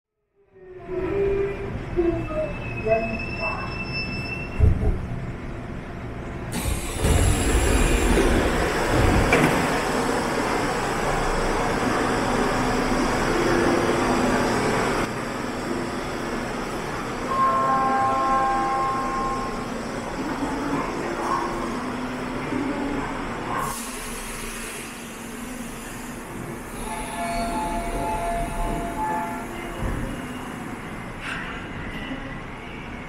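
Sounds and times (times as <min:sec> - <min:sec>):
subway train wheels rumbling: 0:00.4 - 0:33.0.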